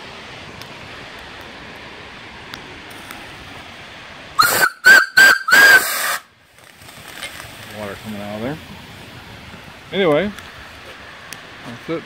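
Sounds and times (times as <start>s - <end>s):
steady steam hiss: 0.0s - 12.0s
steam whistle blast: 4.4s - 6.3s.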